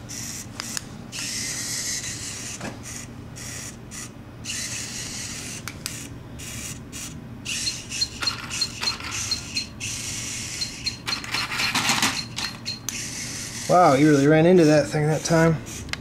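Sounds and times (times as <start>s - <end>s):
small electric motors whirring: 0.1s - 16.0s
short high beeps: 7.6s - 9.8s, 10.5s - 12.9s.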